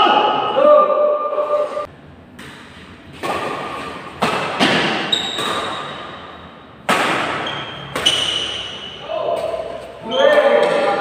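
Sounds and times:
rackets hitting shuttlecock: 0:02.3 - 0:11.0
sneakers squeaking on floor: 0:04.6 - 0:06.4, 0:07.3 - 0:11.0.

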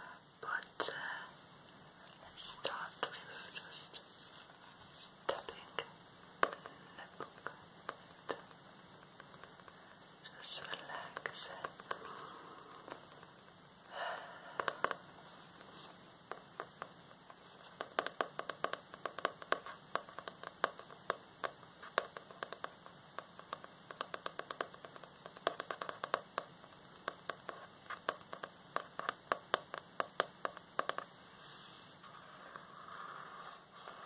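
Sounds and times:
fingernails tapping on notebook: 0:05.3 - 0:09.8, 0:10.6 - 0:12.1, 0:14.5 - 0:15.0, 0:15.6 - 0:31.1.

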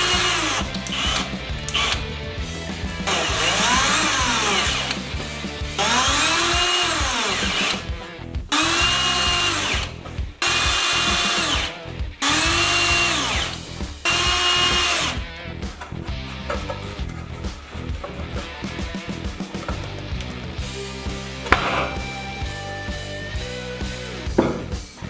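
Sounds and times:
cordless drill driving screws: 0:00.0 - 0:02.0, 0:03.0 - 0:05.0, 0:05.8 - 0:07.9, 0:08.5 - 0:15.2.

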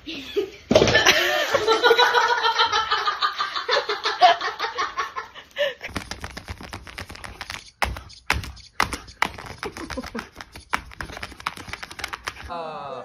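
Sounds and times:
dog paws tapping on screen: 0:05.9 - 0:12.5
person laughing: 0:09.4 - 0:10.7.

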